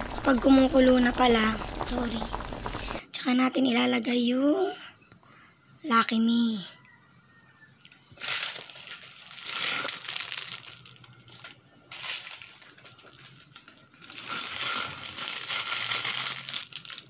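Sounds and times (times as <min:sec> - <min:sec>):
plastic packets crinkling: 0:07.9 - 0:17.0.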